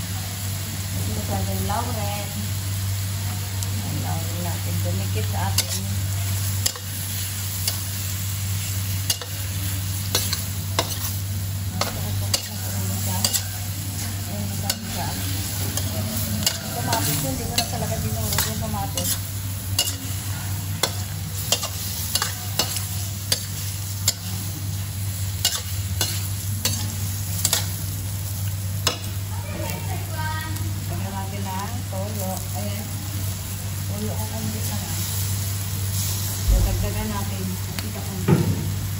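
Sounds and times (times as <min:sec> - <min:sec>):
food sizzling in a pan: 0:00.0 - 0:38.9
metal spatula scraping a pan: 0:09.0 - 0:11.2, 0:11.8 - 0:24.6, 0:25.4 - 0:27.8.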